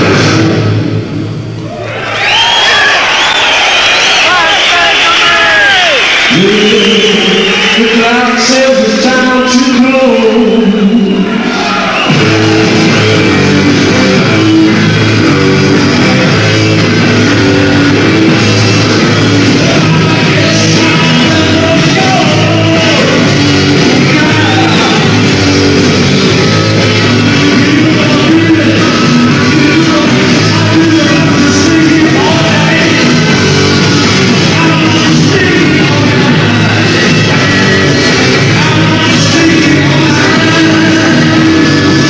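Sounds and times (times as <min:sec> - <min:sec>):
hard rock band playing live: 0:00.0 - 0:01.7, 0:10.2 - 0:42.0.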